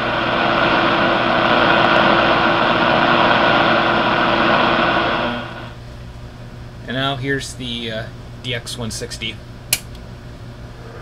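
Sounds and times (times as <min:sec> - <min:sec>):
shortwave static hiss: 0:00.0 - 0:05.8.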